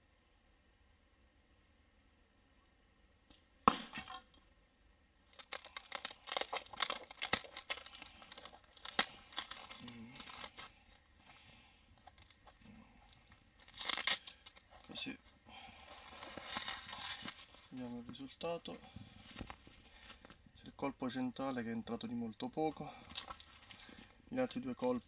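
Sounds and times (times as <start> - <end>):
tape and paper tearing: 5.3 - 10.8, 12.0 - 14.9, 15.9 - 17.5.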